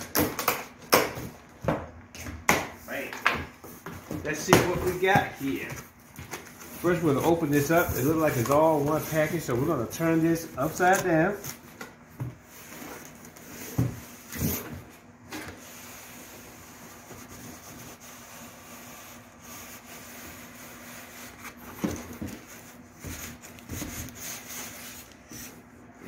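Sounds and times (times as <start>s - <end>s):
cardboard rustling: 3.7s - 15.8s
cardboard rubbing and scraping: 4.3s - 11.4s.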